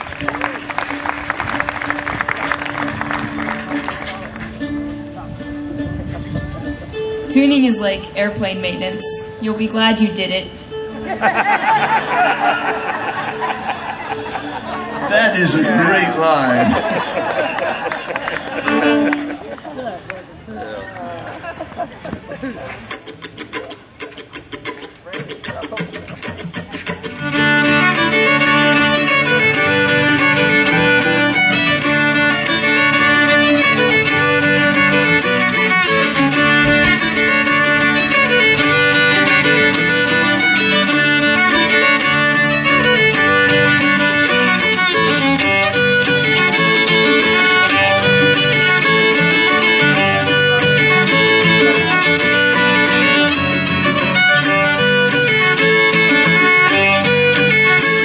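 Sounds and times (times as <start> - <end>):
fiddle melody: 0.0 - 20.1, 22.9 - 58.0
strummed acoustic guitar: 22.9 - 58.0.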